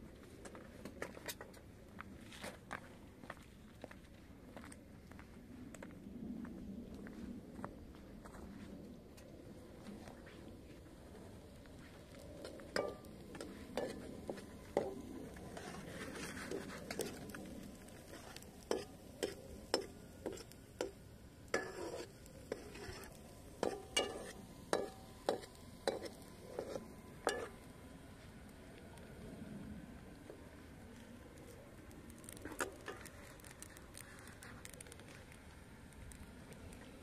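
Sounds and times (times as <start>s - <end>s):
faint sizzle: 10.7s - 37.0s
wood fire clicks and pops: 30.4s - 37.0s.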